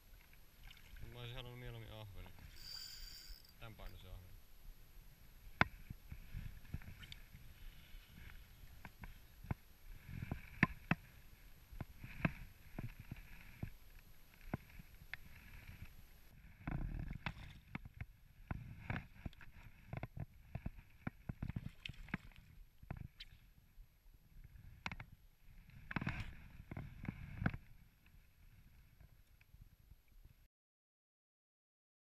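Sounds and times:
water splashing and sloshing: 0.0s - 1.6s, 18.8s - 23.6s.

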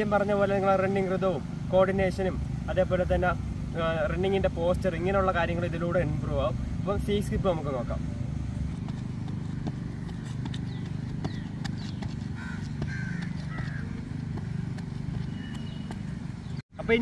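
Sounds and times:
running shoes tapping on track: 8.6s - 16.6s
bird chirping: 9.0s - 16.6s.

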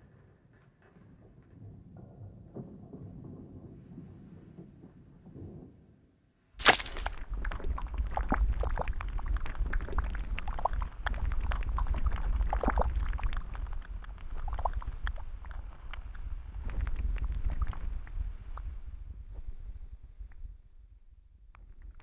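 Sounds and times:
wet pops and gurgles: 6.6s - 18.7s
thick liquid oozing and bubbling: 6.6s - 19.0s
steady low rumble: 7.0s - 21.5s.

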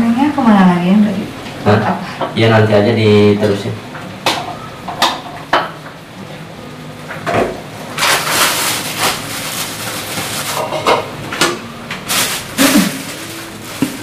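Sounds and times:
food sizzling in oil: 12.1s - 14.0s.

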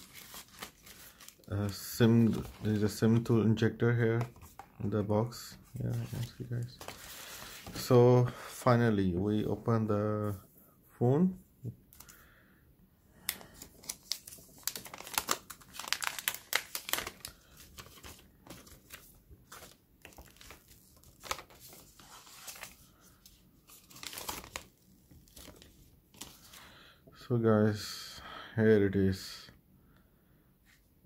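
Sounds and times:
plastic film crinkling: 0.0s - 3.1s, 13.3s - 26.6s.

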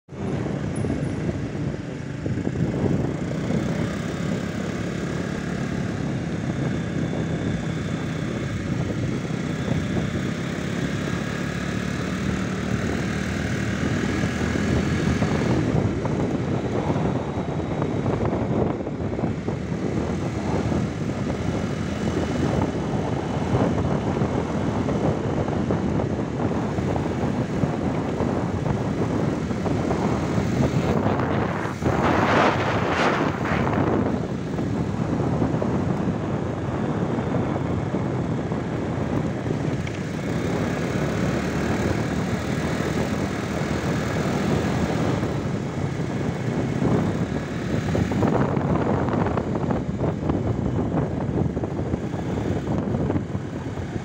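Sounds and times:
wind and road noise: 0.0s - 54.0s
vehicle engine running: 0.1s - 54.0s.

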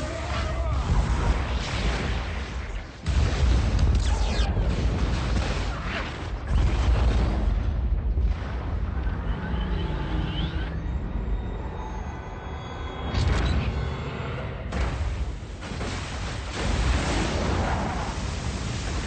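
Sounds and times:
explosion blasts: 0.0s - 9.8s, 14.7s - 19.0s
deep continuous rumble: 0.0s - 19.0s.

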